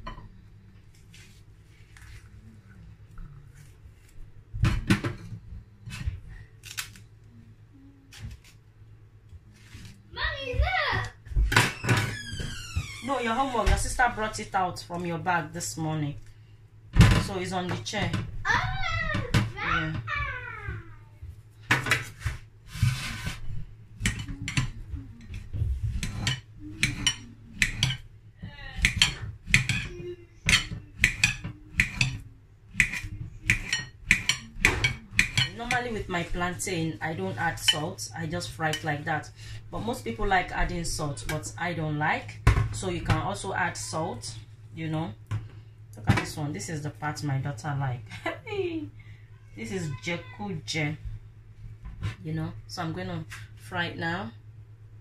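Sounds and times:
plantain being peeled: 0:06.6 - 0:07.1, 0:30.5 - 0:35.8
knife clicking on ceramic plate: 0:26.0 - 0:28.0, 0:28.8 - 0:29.9, 0:30.5 - 0:32.2
knife clicking against plate: 0:30.5 - 0:32.2, 0:32.8 - 0:35.5.

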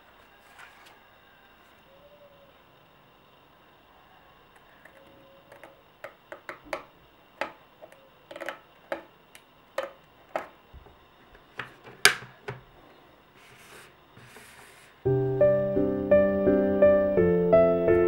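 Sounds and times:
paper rustling: 0:00.1 - 0:01.0, 0:13.4 - 0:15.0.

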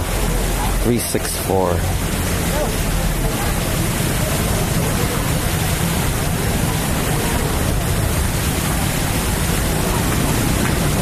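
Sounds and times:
low traffic rumble: 0:00.0 - 0:11.0.

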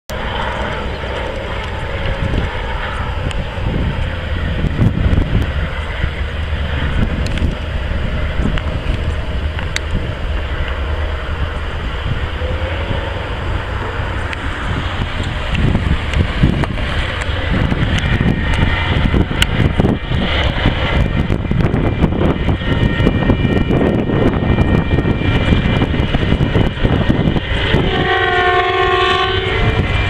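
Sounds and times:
steady low rumble: 0:00.1 - 0:30.0
wind buffeting microphone: 0:00.1 - 0:30.0.

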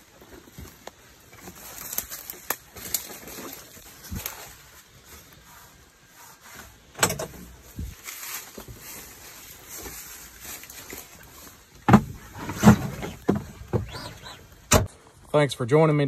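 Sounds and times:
faint rustling: 0:00.0 - 0:14.8
knocks and thumps: 0:11.8 - 0:14.9.

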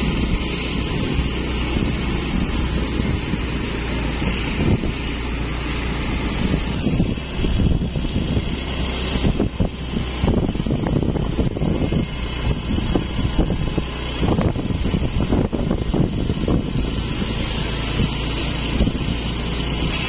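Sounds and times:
wind buffeting microphone: 0:00.0 - 0:20.0
thin high whine: 0:17.0 - 0:19.0.

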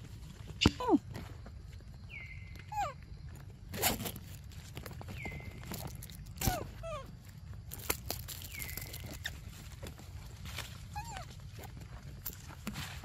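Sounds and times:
leaves and twigs rustling: 0:00.0 - 0:13.0
high-pitched animal calls: 0:02.2 - 0:03.0.

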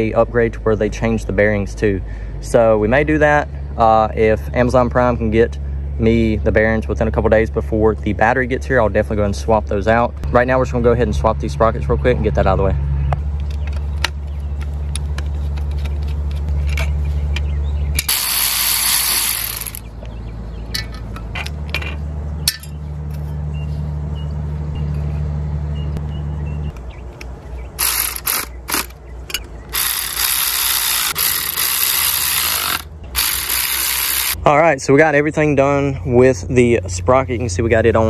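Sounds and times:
steady low hum: 0:00.0 - 0:38.0
cordless electric screwdriver running: 0:18.0 - 0:19.8, 0:27.8 - 0:28.9, 0:29.7 - 0:34.4
metal tool clicks and ratcheting: 0:18.0 - 0:19.8, 0:27.8 - 0:34.4.

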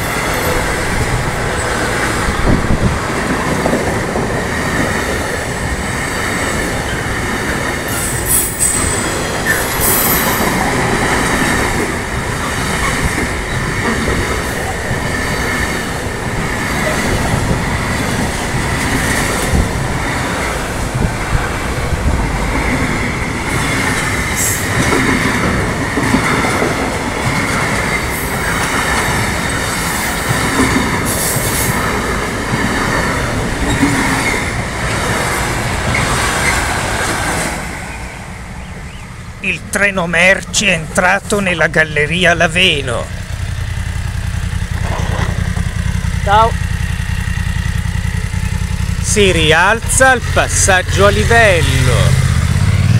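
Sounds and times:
train wheels rumbling on rails: 0:00.0 - 0:52.9
high wheel squeals: 0:07.8 - 0:11.2.

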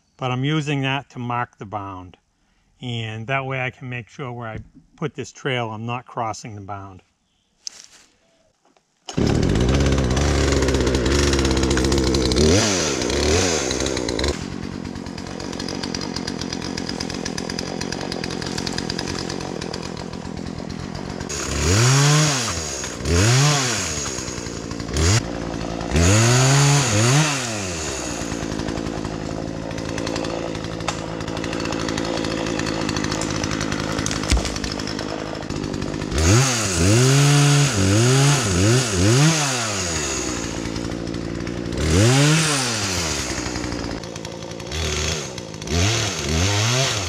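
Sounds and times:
chainsaw idling and revving: 0:09.1 - 0:47.0.

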